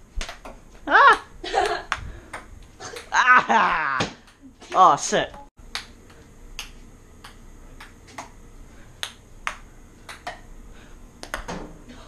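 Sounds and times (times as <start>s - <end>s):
ping pong ball clicks: 5.7s - 6.0s, 6.6s - 8.4s, 9.0s - 10.4s, 11.2s - 11.6s.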